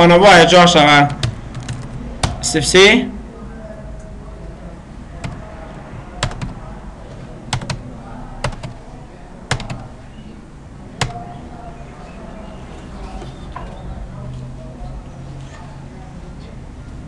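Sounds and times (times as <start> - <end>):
low background noise: 0.0 - 17.0
keyboard and mouse clicks: 1.1 - 2.4, 6.2 - 6.6, 7.5 - 7.8, 8.4 - 8.8, 9.5 - 9.9.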